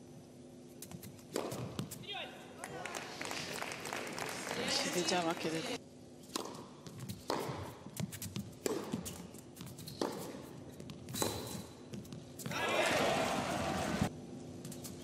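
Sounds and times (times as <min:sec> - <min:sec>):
tennis racket striking ball: 0:00.8 - 0:02.0, 0:06.3 - 0:12.1
tennis ball bouncing: 0:00.9 - 0:02.0, 0:06.3 - 0:12.5
crowd applauding and cheering: 0:02.6 - 0:05.8, 0:12.6 - 0:14.1.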